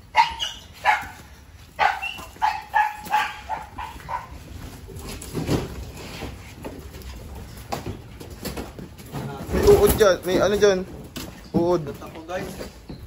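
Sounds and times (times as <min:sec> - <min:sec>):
dog barking: 0:00.1 - 0:01.2, 0:01.8 - 0:04.4.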